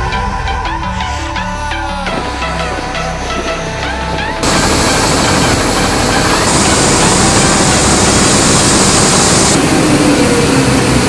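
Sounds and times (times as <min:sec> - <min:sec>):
combine harvester engine running: 0:03.4 - 0:11.0.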